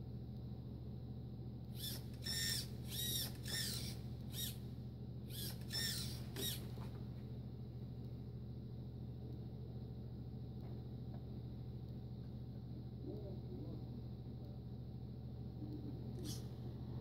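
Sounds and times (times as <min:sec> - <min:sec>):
steady low hum: 0:00.0 - 0:17.0
high-pitched squeaky chirps: 0:01.8 - 0:04.6, 0:05.3 - 0:06.7.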